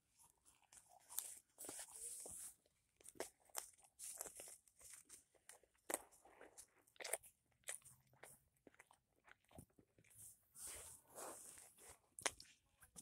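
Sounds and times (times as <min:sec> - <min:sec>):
person chewing and biting food: 0:03.0 - 0:13.0.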